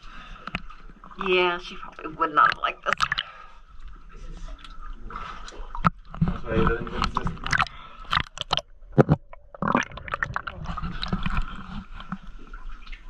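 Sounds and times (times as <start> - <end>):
clicks knocks and scrapes: 5.8 - 12.3.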